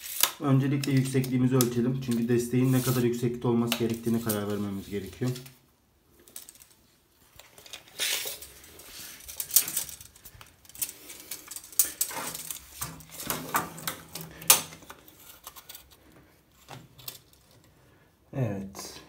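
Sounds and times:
tape measure scraping floor tiles: 0:00.0 - 0:01.3, 0:02.0 - 0:05.5, 0:07.4 - 0:16.0
steel tape measure clicking and rattling: 0:07.4 - 0:14.2.

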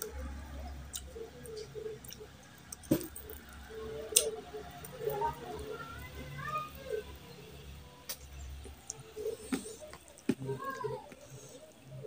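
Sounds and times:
man chewing food: 0:00.8 - 0:05.0.

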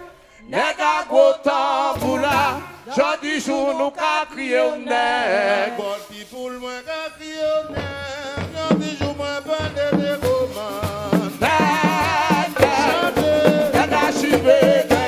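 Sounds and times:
man singing: 0:00.0 - 0:15.0
hand drums: 0:07.7 - 0:15.0.

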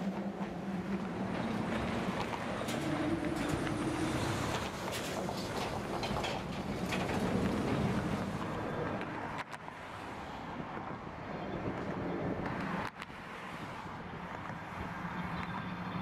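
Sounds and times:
freight train rumbling over bridge: 0:00.0 - 0:09.4.

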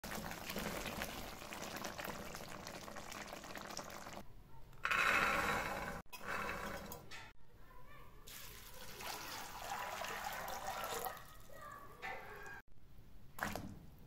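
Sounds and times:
curry bubbling in a pot: 0:00.0 - 0:04.2.

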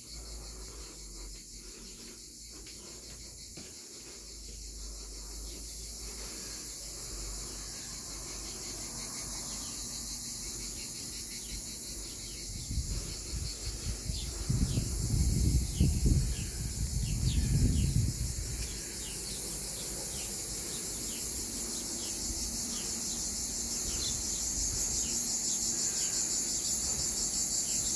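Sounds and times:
insects chirring: 0:00.0 - 0:27.9
wind buffeting microphone: 0:11.5 - 0:19.1.

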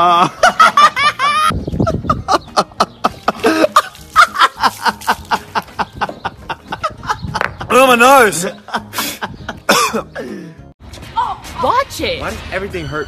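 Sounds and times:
person laughing: 0:00.0 - 0:07.7, 0:08.6 - 0:10.4
person coughing: 0:09.7 - 0:10.1.

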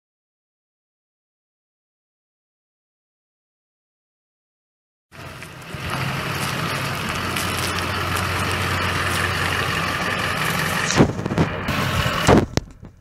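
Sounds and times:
diesel engine running: 0:05.1 - 0:13.0.

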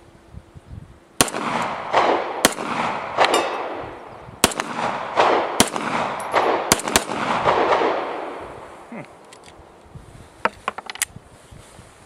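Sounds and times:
pistol shots with echo: 0:01.2 - 0:08.6.

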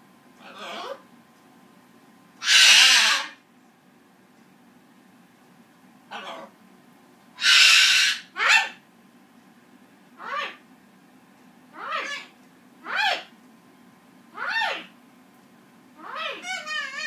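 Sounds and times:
parrot calls rising and falling: 0:02.4 - 0:03.4, 0:07.4 - 0:08.8, 0:11.8 - 0:13.2, 0:16.0 - 0:17.0
parrot screech: 0:02.4 - 0:03.4, 0:07.4 - 0:08.8, 0:11.8 - 0:12.3, 0:12.9 - 0:13.3, 0:16.0 - 0:17.0.

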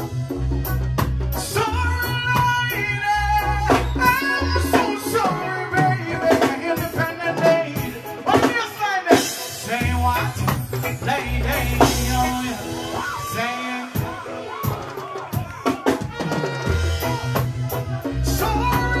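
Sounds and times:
heavy bass line: 0:00.0 - 0:06.2, 0:09.6 - 0:13.2, 0:16.1 - 0:19.0
drum kit beat: 0:00.0 - 0:19.0
man singing into microphone: 0:01.4 - 0:16.6, 0:18.1 - 0:19.0.

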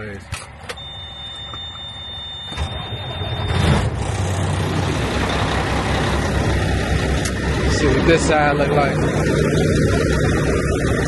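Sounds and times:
diesel truck engine idling: 0:00.0 - 0:11.0
steady high beep: 0:00.8 - 0:03.8.

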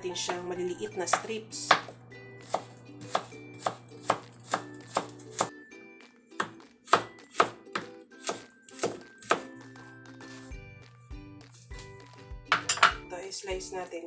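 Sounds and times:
faint background music: 0:00.0 - 0:14.0
knife tapping on cutting board: 0:01.1 - 0:01.9.

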